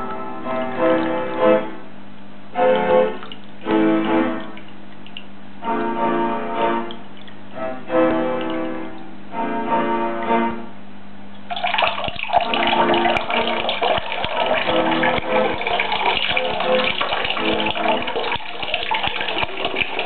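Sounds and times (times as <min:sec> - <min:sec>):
piano music: 0:00.0 - 0:10.8, 0:11.5 - 0:20.0
water gurgling and splashing: 0:02.6 - 0:05.4, 0:06.7 - 0:07.5, 0:11.5 - 0:20.0.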